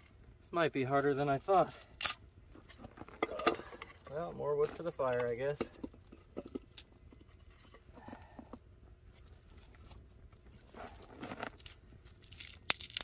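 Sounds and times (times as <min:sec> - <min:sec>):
firewood knocks and scrapes: 0:02.5 - 0:12.2.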